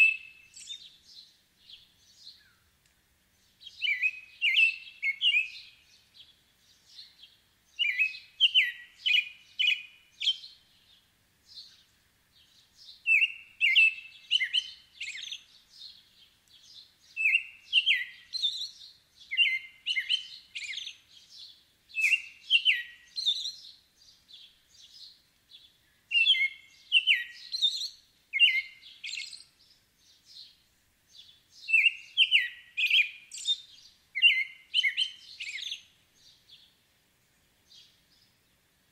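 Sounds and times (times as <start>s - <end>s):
bird singing whistled phrases: 0.0s - 0.9s, 3.7s - 5.8s, 7.8s - 10.6s, 13.0s - 15.5s, 17.2s - 21.0s, 21.9s - 23.6s, 26.1s - 29.5s, 31.6s - 35.9s.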